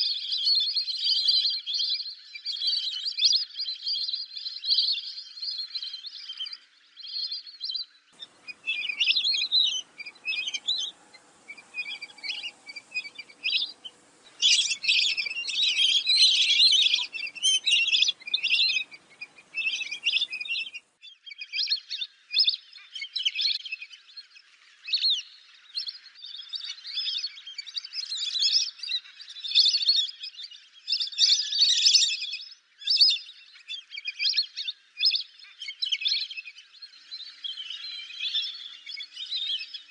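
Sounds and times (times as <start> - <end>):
ducks whistling calls: 8.2 - 20.8.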